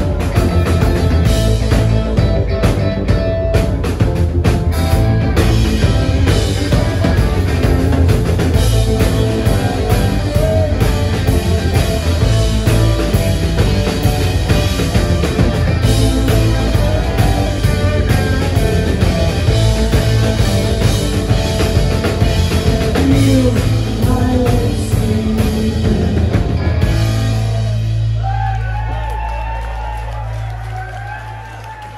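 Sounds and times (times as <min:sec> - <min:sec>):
rock band playing: 0:00.0 - 0:31.9.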